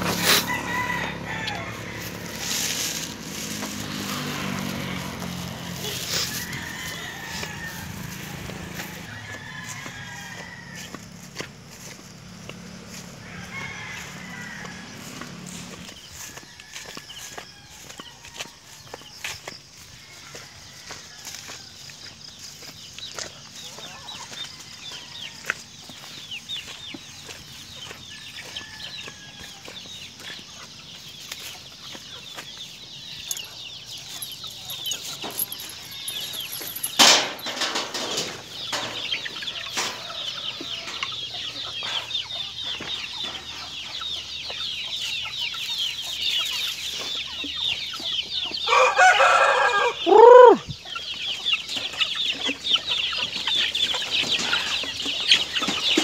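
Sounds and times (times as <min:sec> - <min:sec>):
rooster crowing: 0:00.0 - 0:11.4, 0:13.0 - 0:18.7, 0:48.6 - 0:50.6
chickens clucking and cheeping: 0:00.0 - 0:56.0.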